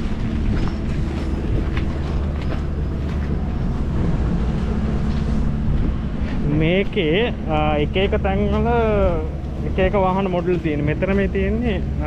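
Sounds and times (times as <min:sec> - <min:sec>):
footsteps on gravel: 0:00.0 - 0:07.0
wind buffeting microphone: 0:00.0 - 0:12.0.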